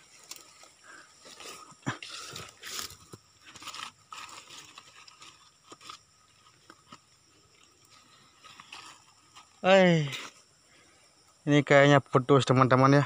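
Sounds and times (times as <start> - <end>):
crackles and clicks: 0.0 - 0.7, 1.3 - 10.4
dry leaves crunching and rustling: 0.0 - 9.6.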